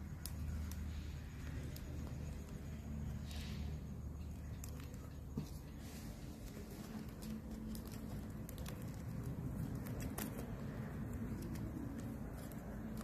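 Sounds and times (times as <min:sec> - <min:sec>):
leaves rustling and crackling: 0:00.0 - 0:13.0
low steady hum: 0:00.0 - 0:13.0.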